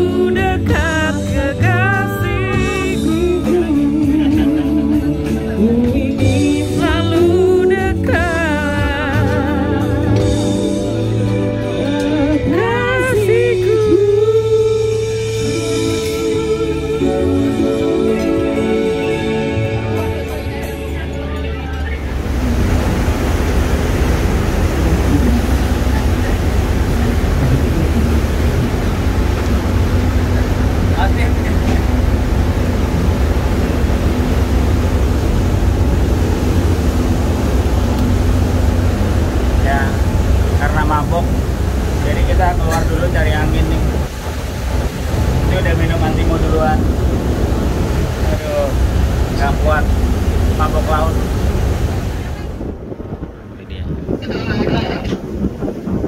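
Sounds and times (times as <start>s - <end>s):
woman singing with vibrato: 0.0s - 10.2s, 11.7s - 19.4s
electric guitar: 0.0s - 50.1s
bass: 0.0s - 56.0s
boat engine rumble: 0.0s - 56.0s
churning wake: 0.0s - 56.0s
keyboard: 0.0s - 56.0s
wind on microphone: 22.1s - 42.3s, 43.1s - 56.0s.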